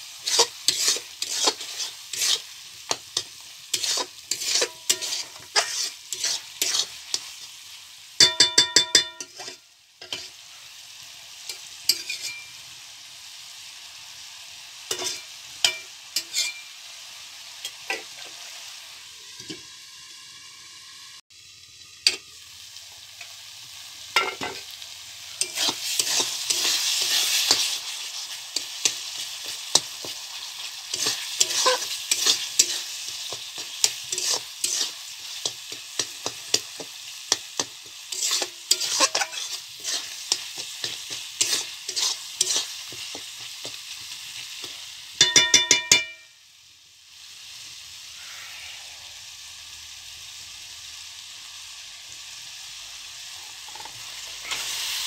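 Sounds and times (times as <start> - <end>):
spices sizzling in pan: 0.0 - 55.0
spoon scraping and knocking pan: 0.2 - 7.4, 8.2 - 10.4, 11.5 - 12.5, 14.9 - 16.7, 17.6 - 18.4, 24.2 - 24.7, 25.4 - 28.0, 28.6 - 44.0, 44.6 - 46.3.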